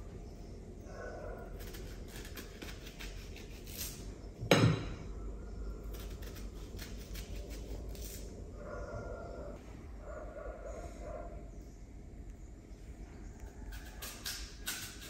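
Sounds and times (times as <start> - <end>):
knife scraping cuts on fruit: 1.5 - 4.1, 13.7 - 15.0
knife knocking against plate: 4.4 - 5.0.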